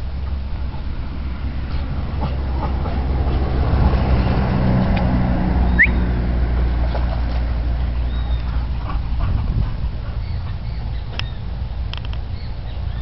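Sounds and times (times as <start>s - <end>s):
vehicle engine rumbling: 0.0s - 13.0s
rising high chirp: 5.6s - 6.1s.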